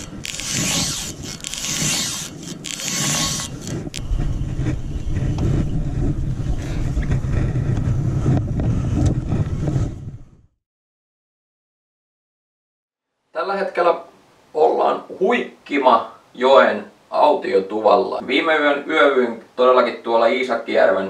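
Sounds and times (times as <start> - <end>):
wind rumbling on microphone: 0.0 - 10.6.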